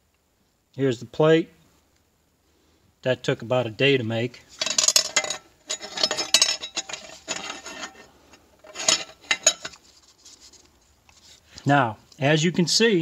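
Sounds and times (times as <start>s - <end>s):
metal clinking and rattling: 4.5s - 10.0s.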